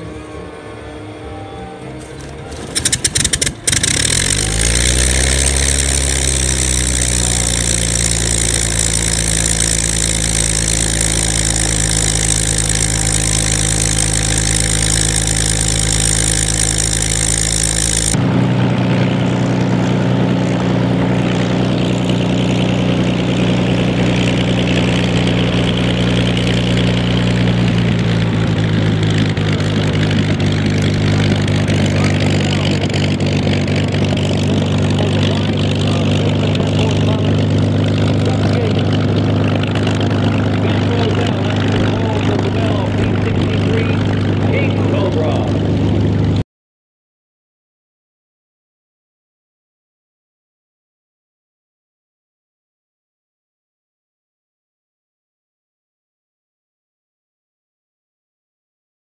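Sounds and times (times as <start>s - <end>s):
aircraft engine starting and idling: 0.0s - 46.4s
deep steady engine note: 0.0s - 46.4s.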